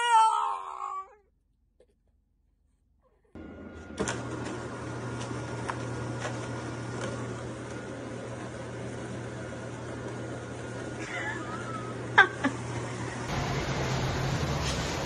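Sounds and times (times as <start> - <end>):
mechanical hum and whirring: 3.4 - 15.0.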